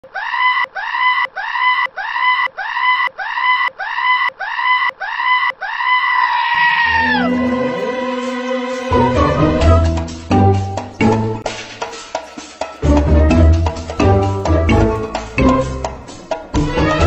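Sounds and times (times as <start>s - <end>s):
bleat-like comic sound effect: 6.4s - 8.2s
background music with bass line: 12.8s - 17.0s.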